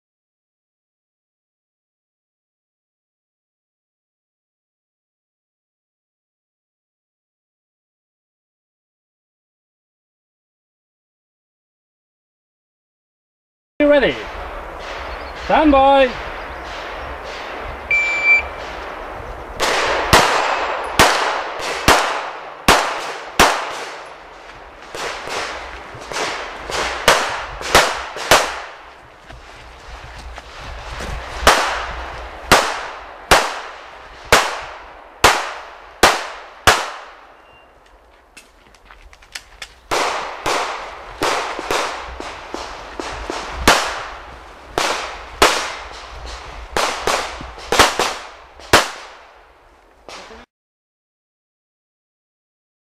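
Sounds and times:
pistol shots: 0:14.8 - 0:17.6, 0:19.6 - 0:28.9, 0:31.4 - 0:37.4, 0:39.9 - 0:44.2, 0:44.8 - 0:46.0, 0:46.8 - 0:49.3.

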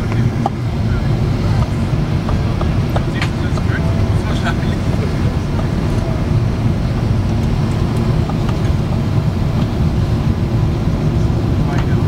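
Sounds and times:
airplane cabin engine drone: 0:00.0 - 0:12.0.

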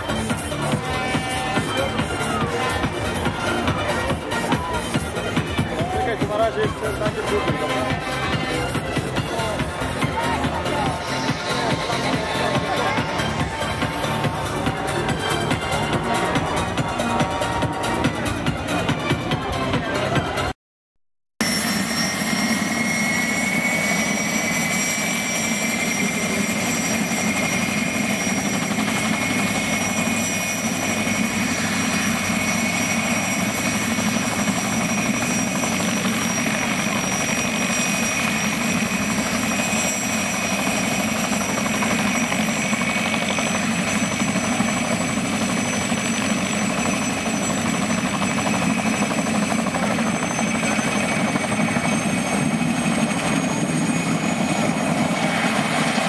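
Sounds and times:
high turbine whine: 0:00.0 - 0:18.9, 0:21.4 - 0:56.0
helicopter engine and rotor roar: 0:00.0 - 0:20.5, 0:21.4 - 0:56.0.

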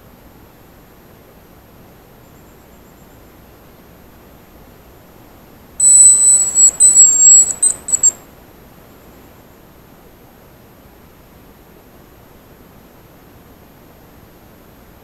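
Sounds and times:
high thin decoy whistle: 0:05.8 - 0:08.2.

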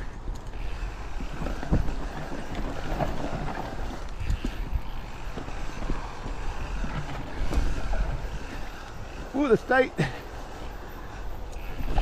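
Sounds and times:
tyres rolling over dirt: 0:00.0 - 0:12.0
bike knocks and rattles: 0:00.3 - 0:09.0.

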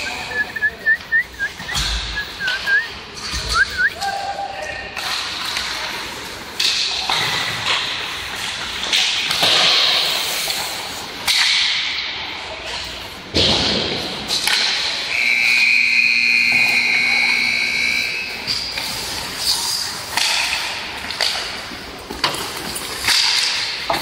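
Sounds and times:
hockey sticks and puck cracking: 0:00.0 - 0:15.6, 0:16.6 - 0:24.0
skates hissing on ice: 0:08.0 - 0:11.3, 0:18.3 - 0:20.8.

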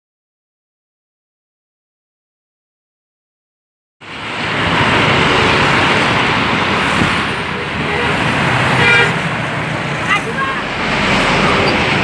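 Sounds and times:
highway traffic passing at speed: 0:04.0 - 0:12.0.

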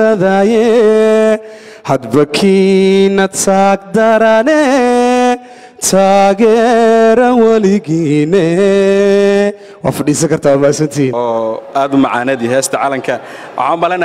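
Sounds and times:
man singing unaccompanied: 0:00.0 - 0:09.6.

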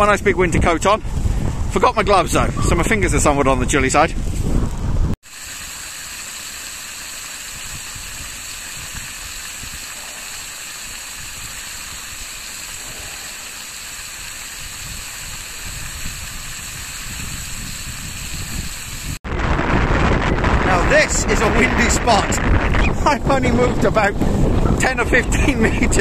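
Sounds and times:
water gushing from hose onto rocks: 0:05.2 - 0:19.2, 0:20.7 - 0:26.0.

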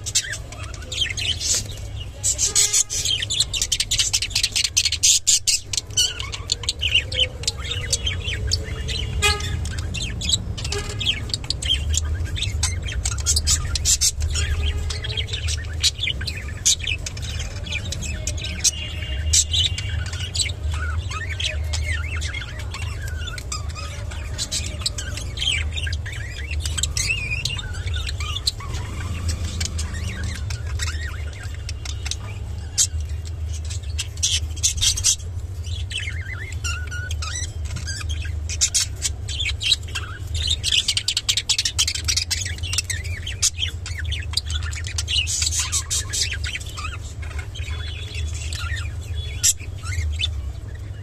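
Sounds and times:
budgerigars chirping and chattering: 0:00.0 - 0:51.0.

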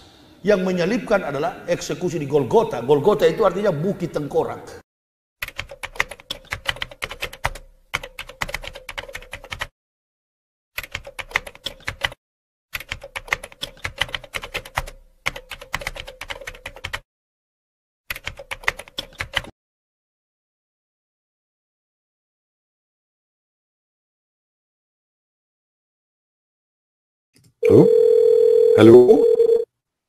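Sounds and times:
keyboard typing: 0:05.4 - 0:09.7, 0:10.8 - 0:17.0, 0:18.1 - 0:19.5.

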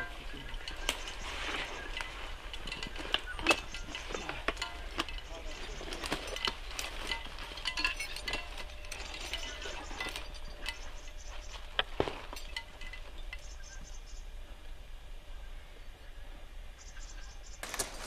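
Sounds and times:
metal climbing gear clinking: 0:00.0 - 0:13.8.

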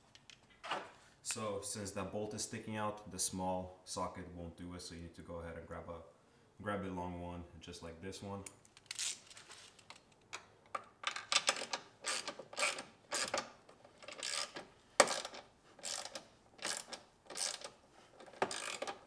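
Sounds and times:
ratchet pawl clicks: 0:14.1 - 0:17.7, 0:18.4 - 0:19.0.

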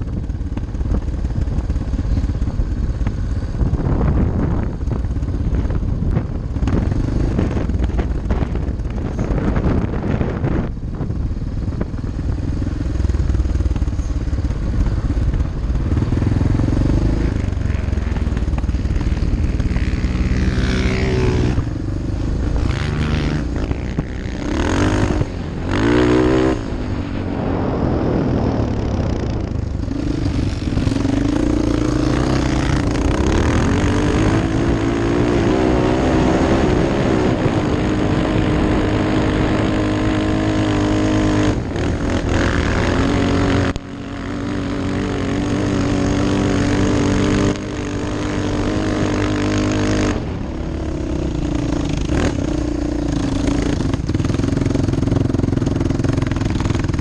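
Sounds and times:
wind on microphone: 0:00.0 - 0:57.0
quad engine revving: 0:11.6 - 0:57.0.

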